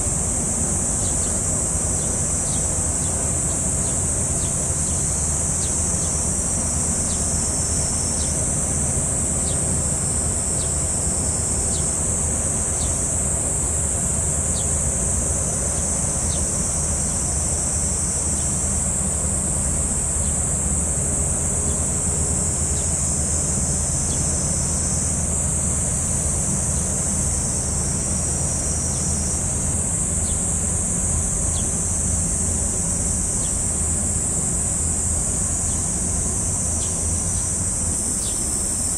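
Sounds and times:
high-pitched insect chorus: 0.0 - 38.9
ship diesel engine drone: 0.0 - 38.9.

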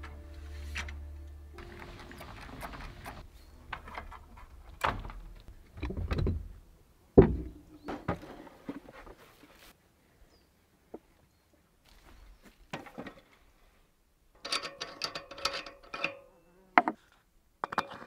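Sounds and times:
hard thud: 7.2 - 8.2.

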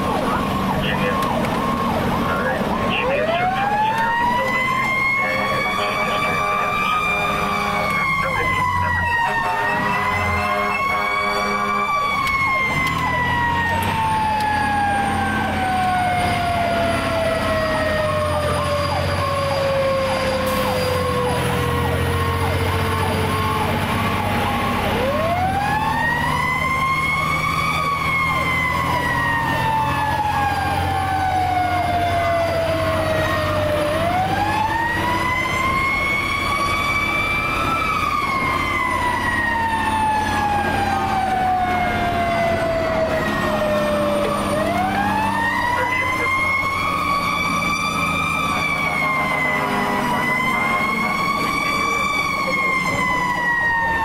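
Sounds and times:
truck engine rumble: 0.0 - 54.0.

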